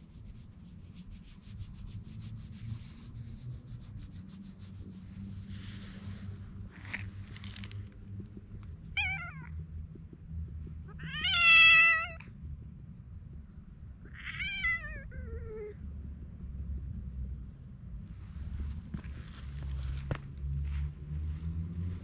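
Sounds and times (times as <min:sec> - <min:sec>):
cat meowing: 0:09.0 - 0:09.5, 0:10.9 - 0:12.3, 0:14.1 - 0:15.8.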